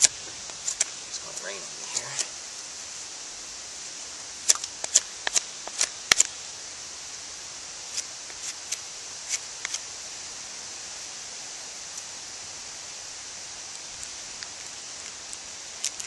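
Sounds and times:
knife carving wood: 0.0s - 2.3s, 4.4s - 6.3s, 7.9s - 9.8s, 13.9s - 16.0s
steady hiss: 0.0s - 16.0s.

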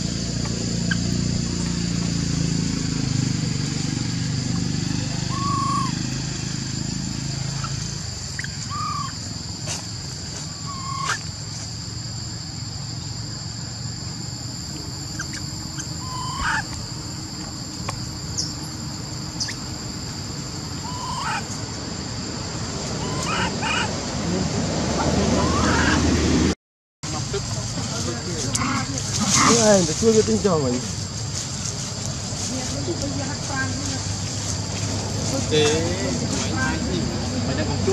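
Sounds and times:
high insect drone: 0.0s - 26.5s, 27.1s - 37.9s
baby monkey calls: 5.2s - 6.2s, 7.4s - 9.3s, 10.5s - 11.3s, 15.0s - 19.8s, 20.6s - 21.6s, 23.0s - 23.9s, 25.0s - 26.0s, 28.5s - 29.7s.

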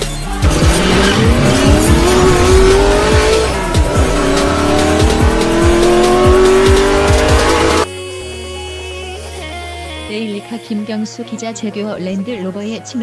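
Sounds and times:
electronic music with kick drum: 0.0s - 7.9s
racing car engine revving: 0.0s - 7.9s.

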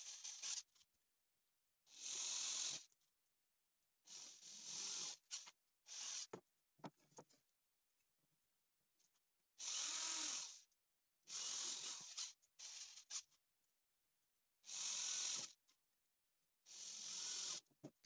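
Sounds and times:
electric drill driving screws into wood: 9.6s - 10.6s, 14.7s - 15.6s, 16.8s - 17.7s.

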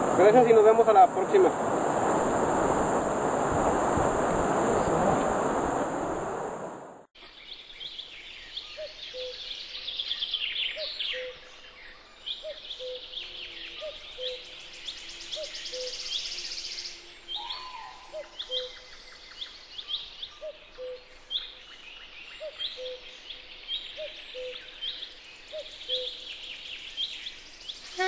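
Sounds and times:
steady high buzz: 0.0s - 7.0s
rush of wind-like noise: 0.0s - 7.1s
birds singing and chirping: 7.4s - 28.0s.

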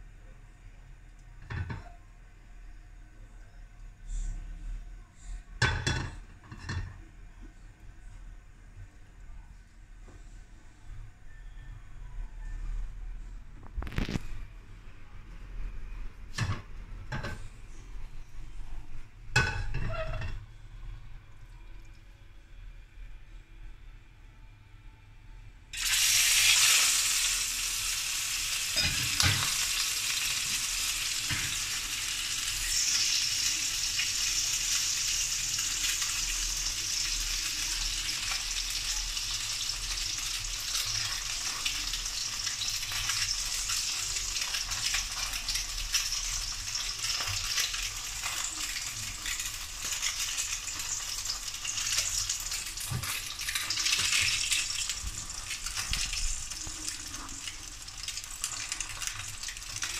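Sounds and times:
fish sizzling in hot oil: 25.8s - 59.9s.

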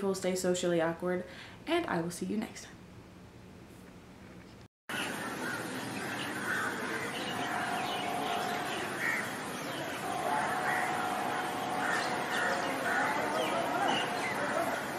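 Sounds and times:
birds calling: 4.9s - 14.9s.

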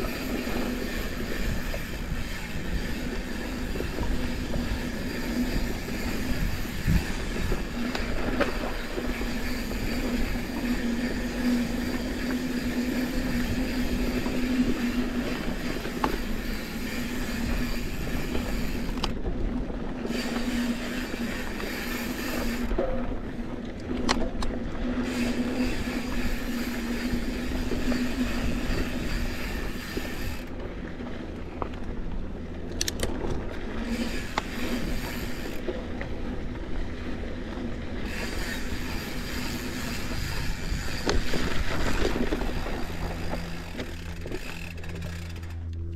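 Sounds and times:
bike tyres on dirt trail: 0.0s - 45.6s
bike clicks and rattles: 0.0s - 45.9s
low hum: 0.0s - 45.9s.

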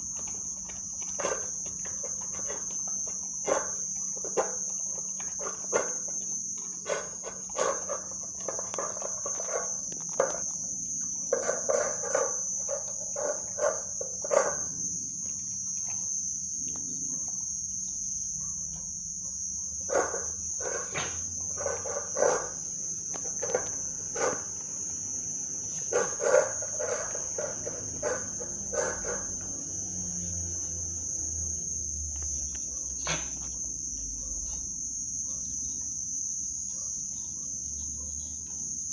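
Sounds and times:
puppy chewing from metal bowl: 0.0s - 16.9s, 19.9s - 24.9s, 25.7s - 29.7s
crickets chirring: 0.0s - 38.9s.

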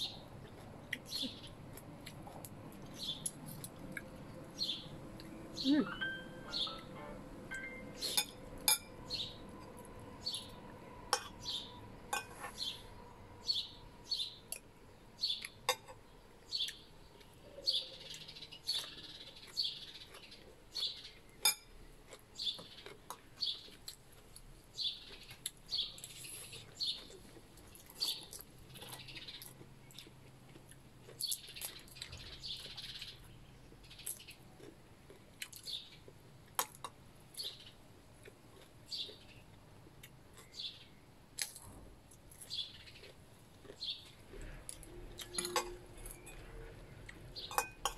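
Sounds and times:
birds chirping: 2.8s - 3.4s, 4.5s - 9.5s, 10.1s - 14.6s, 40.4s - 41.1s, 42.5s - 47.9s.

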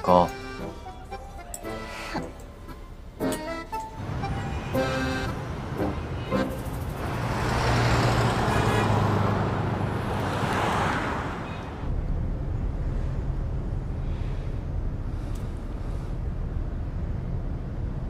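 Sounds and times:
bus rumbling from inside: 0.0s - 18.0s
vehicle passing close: 3.8s - 15.1s.

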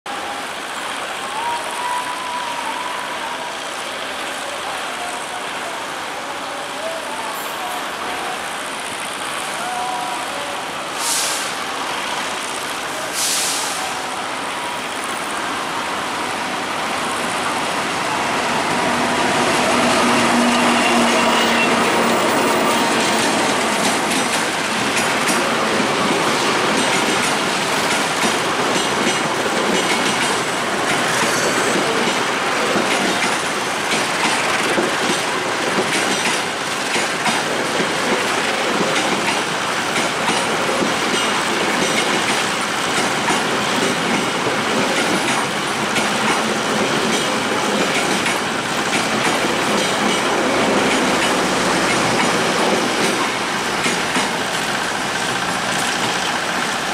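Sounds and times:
locomotive passing: 7.8s - 56.9s
short hisses: 11.0s - 11.6s, 13.2s - 13.9s
train wheels clacking: 17.8s - 56.9s.

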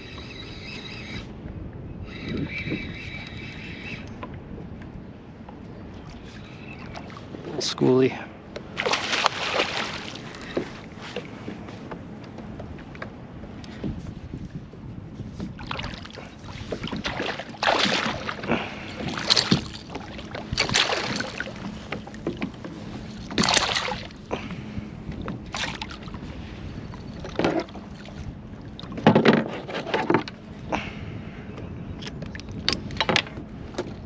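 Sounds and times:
water slapping hull: 4.1s - 34.0s
fish splashing at water surface: 8.8s - 10.2s, 17.1s - 19.9s.

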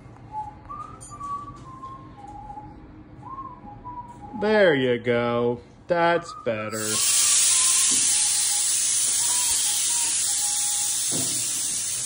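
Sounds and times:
loud steady hiss: 6.7s - 12.0s.

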